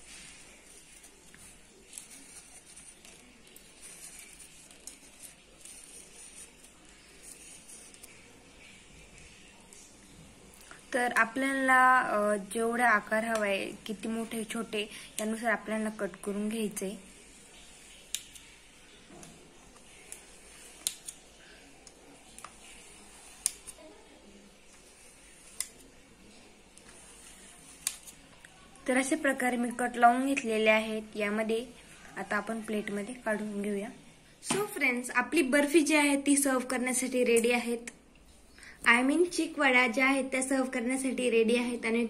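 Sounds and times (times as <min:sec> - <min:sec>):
low room hiss: 0:00.0 - 0:42.0.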